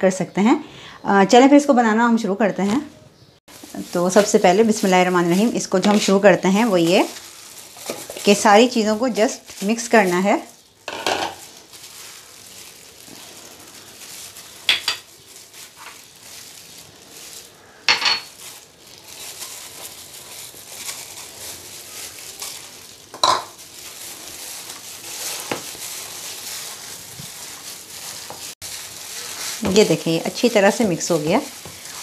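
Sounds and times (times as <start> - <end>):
food rustling: 3.5 - 32.0
utensils knocking plastic bowl: 10.9 - 11.4.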